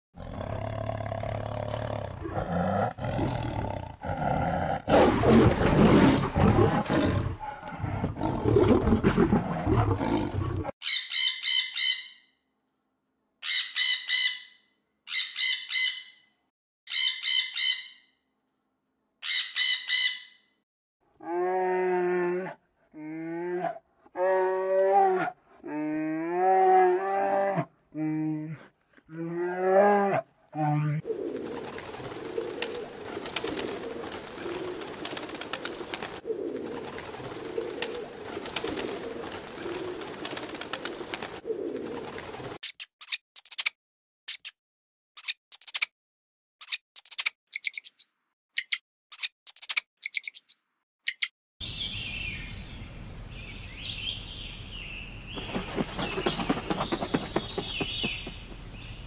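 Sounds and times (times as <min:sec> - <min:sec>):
short high bird chirps: 0:47.0 - 0:52.4
low bird calls: 0:53.4 - 0:59.0.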